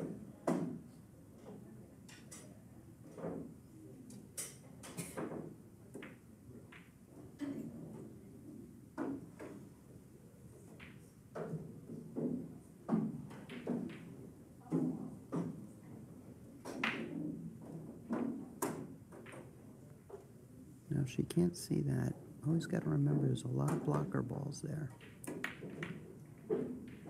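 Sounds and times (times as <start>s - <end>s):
pool balls clacking: 22.9s - 27.0s.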